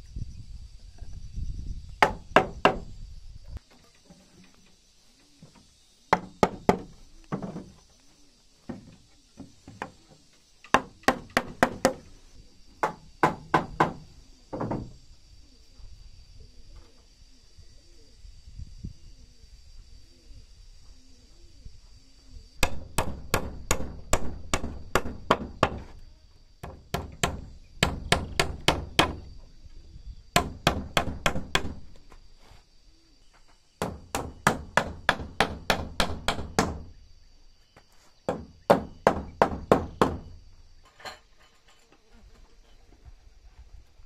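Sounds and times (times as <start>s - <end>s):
faint high insect buzz: 0.0s - 44.0s
hammer striking nails: 6.2s - 7.0s, 10.7s - 12.1s, 12.8s - 14.0s, 22.6s - 25.9s, 26.6s - 29.3s, 30.4s - 31.8s, 33.8s - 36.9s, 38.3s - 40.3s.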